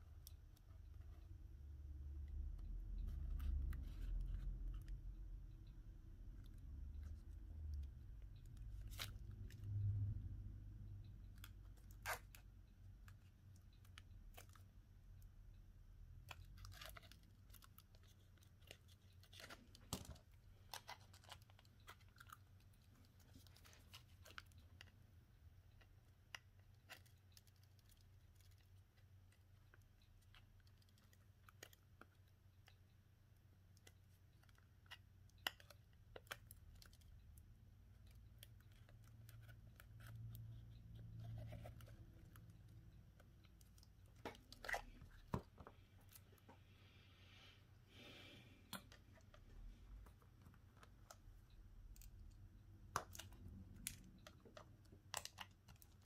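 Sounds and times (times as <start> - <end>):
small tools clicking and scratching: 16.2 - 25.0, 25.7 - 32.9.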